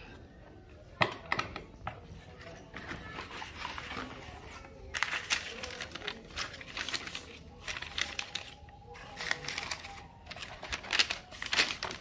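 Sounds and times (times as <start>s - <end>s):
paper rustling and crinkling: 2.2s - 12.0s.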